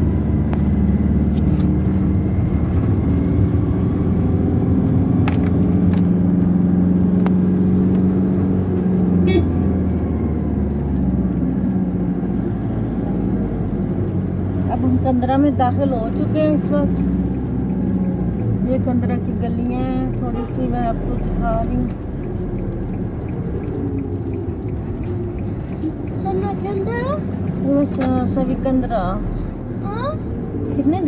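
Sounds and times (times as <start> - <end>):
car engine and road noise: 0.0 - 31.0.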